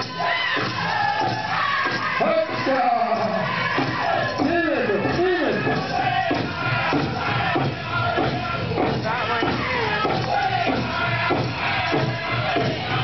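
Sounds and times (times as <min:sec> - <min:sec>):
men singing high: 0:00.0 - 0:13.0
big drum steady beat: 0:03.2 - 0:13.0.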